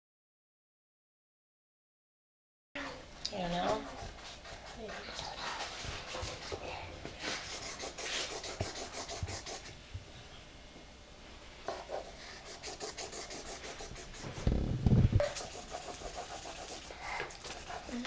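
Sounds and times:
pencil scribbling on paper: 3.5 - 6.6, 7.2 - 9.8, 11.7 - 14.4, 15.2 - 18.0.

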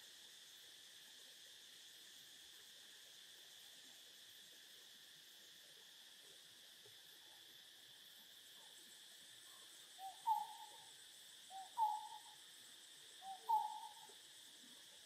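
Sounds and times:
high insect drone: 0.0 - 15.0
bird hooting: 10.0 - 10.9, 11.5 - 12.4, 13.2 - 14.2.

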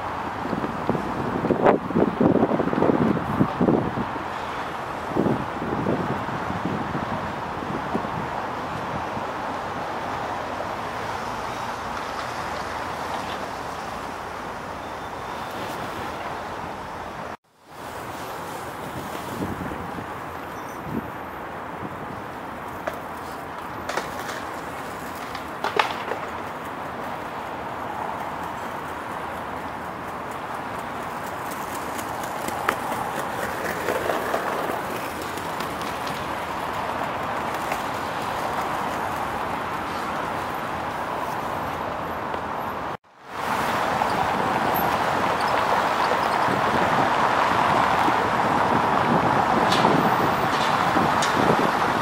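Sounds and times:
distant city noise: 0.0 - 52.0
distant traffic hum: 0.0 - 52.0.

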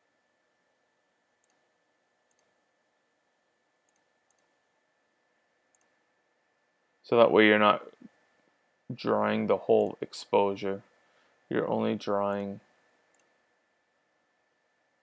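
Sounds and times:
computer mouse clicks: 1.4 - 1.6, 2.3 - 2.5, 3.9 - 4.5, 5.7 - 6.0, 13.1 - 13.4.

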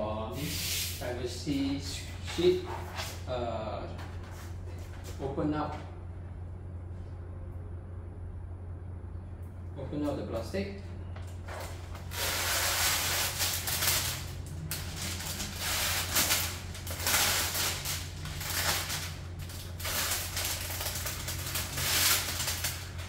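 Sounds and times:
plastic film crinkling: 11.2 - 23.0.

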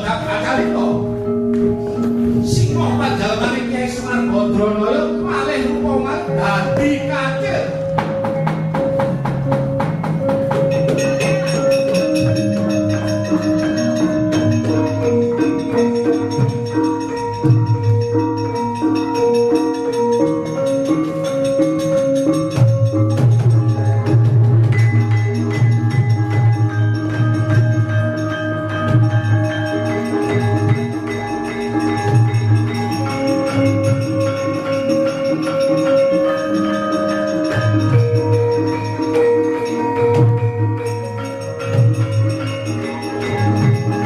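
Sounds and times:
gamelan ensemble playing: 0.0 - 44.0.

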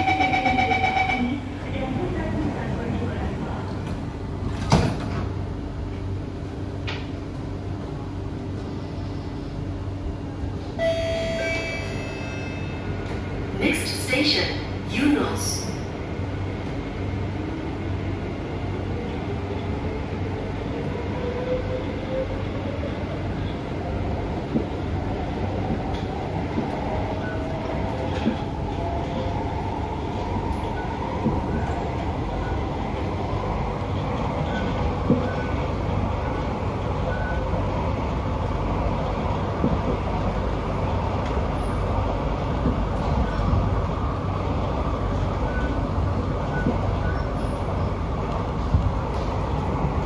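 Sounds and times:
train whine rising in pitch: 0.0 - 1.3, 10.8 - 12.8
train wheels rumbling on track: 0.0 - 50.0.

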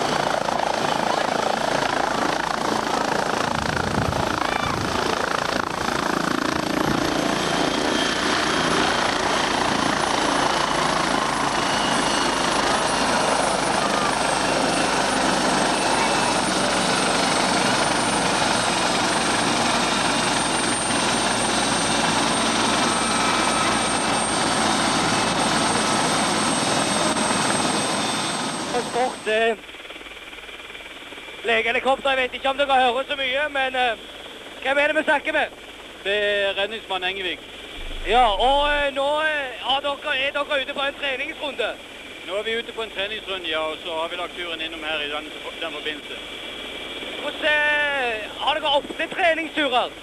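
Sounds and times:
helicopter rotor rushing: 0.0 - 50.0
turbine whine: 37.7 - 39.2.

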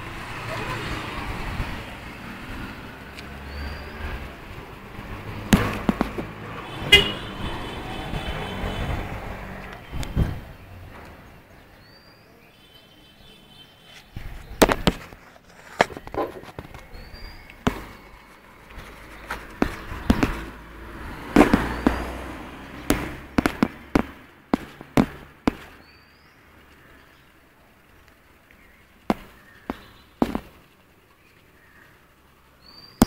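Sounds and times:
sharp clicks and knocks: 5.0 - 6.5.

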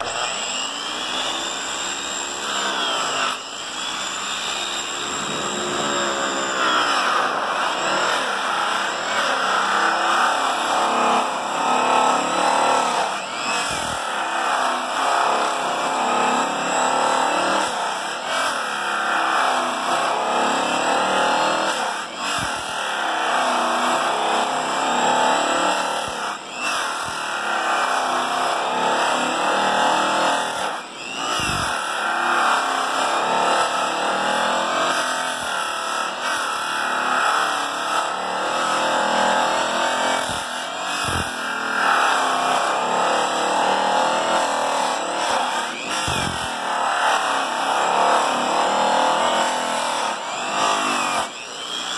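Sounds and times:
electric polisher buffing metal: 0.0 - 10.6, 40.2 - 42.3, 45.4 - 48.3.

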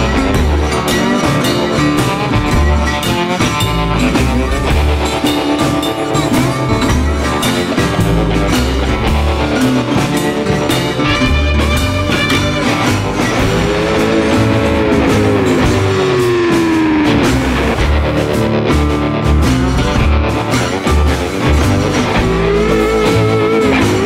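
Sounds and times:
electric guitar bending notes: 0.0 - 24.0
rock music: 0.0 - 24.0.

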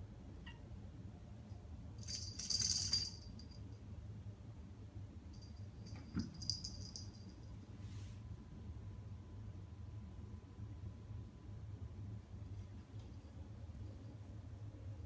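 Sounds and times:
cat collar jingling: 2.0 - 3.6, 5.4 - 7.5.

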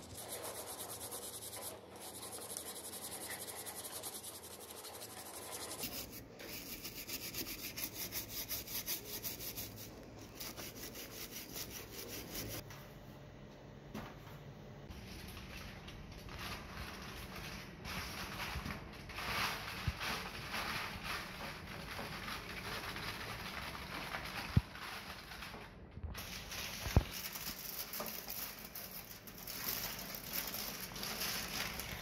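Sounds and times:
aluminium foil crinkling: 14.9 - 32.0.

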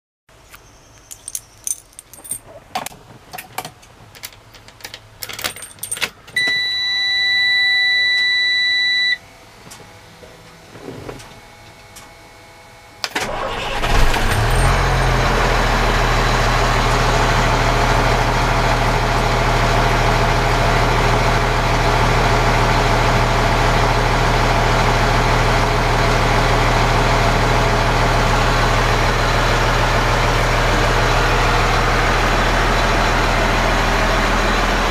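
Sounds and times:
keys jangling: 1.0 - 2.6, 4.2 - 6.2, 14.2 - 14.8
dashboard warning buzzer: 6.4 - 9.2
diesel engine starting and idling: 13.0 - 34.9.

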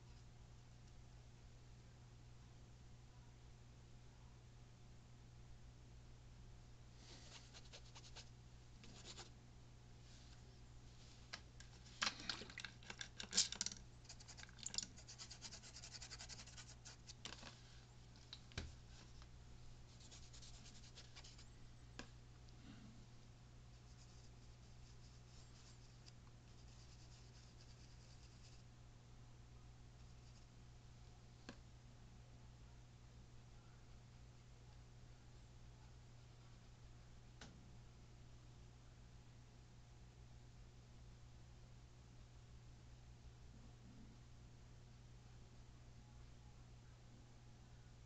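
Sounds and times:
steady low hum: 0.0 - 48.0
scratching and rubbing: 7.0 - 9.3, 11.6 - 17.7, 19.9 - 21.5, 23.8 - 28.6.

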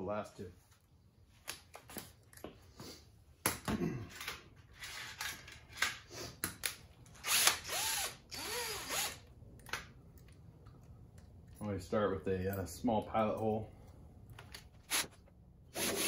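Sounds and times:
cordless drill motor whining: 7.2 - 9.2.

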